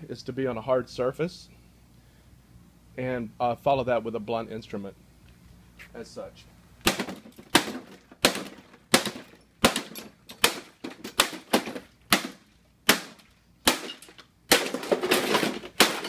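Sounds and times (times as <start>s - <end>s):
parts breaking: 6.9s - 16.0s.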